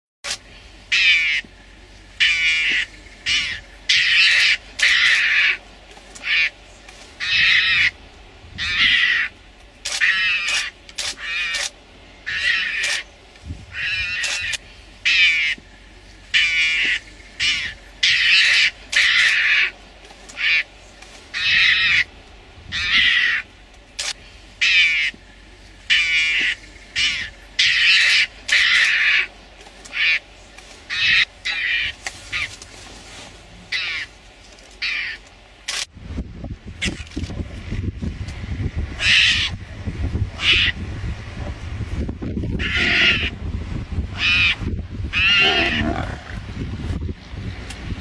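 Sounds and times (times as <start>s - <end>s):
mongoose screeching: 2.2s - 5.6s, 9.9s - 11.7s, 12.3s - 13.0s, 16.4s - 19.7s, 25.9s - 29.3s, 39.0s - 39.6s, 42.6s - 43.4s, 44.2s - 46.3s.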